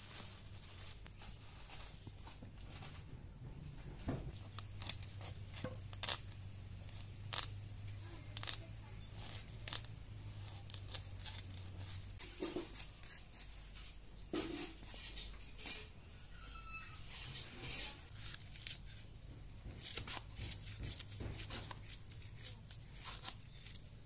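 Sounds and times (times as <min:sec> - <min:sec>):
blade scraping fish scales: 0:04.4 - 0:13.6.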